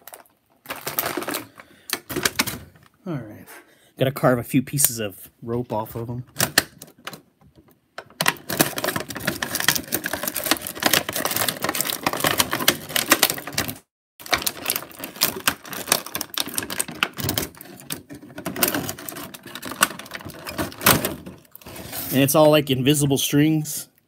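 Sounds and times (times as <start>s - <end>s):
plastic packaging crackling: 0.0s - 3.0s, 8.0s - 22.5s.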